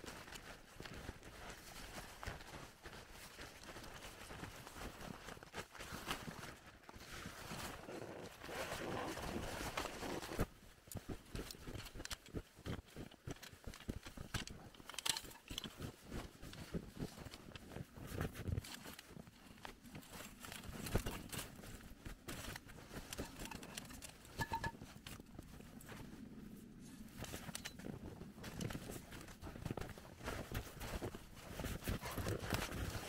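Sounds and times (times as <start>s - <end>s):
footsteps crunching in snow: 0.0s - 10.7s, 24.1s - 33.0s
nylon tent fabric rustling: 0.3s - 12.6s, 24.3s - 33.0s.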